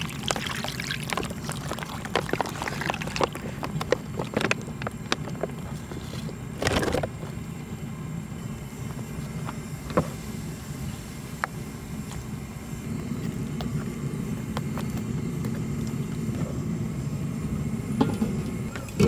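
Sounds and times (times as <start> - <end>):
stew pouring and splattering: 0.0 - 4.5
steady low hum: 0.0 - 19.0.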